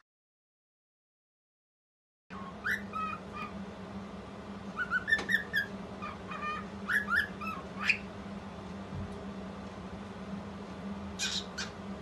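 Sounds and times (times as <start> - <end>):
cockatiel whistling and chirping: 2.3 - 3.5, 4.8 - 8.1, 11.2 - 11.7
steady low hum: 2.3 - 12.0.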